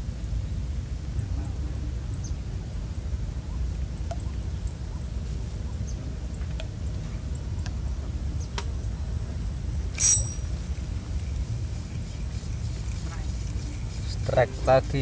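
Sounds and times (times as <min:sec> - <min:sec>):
faint ticks: 0:06.4 - 0:06.8.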